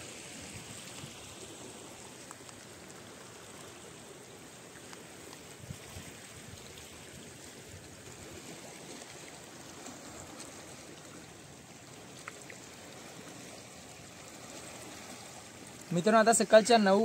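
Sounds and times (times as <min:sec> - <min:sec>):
seawater trickling among rocks: 0:00.0 - 0:17.0
small clicks: 0:02.2 - 0:02.7.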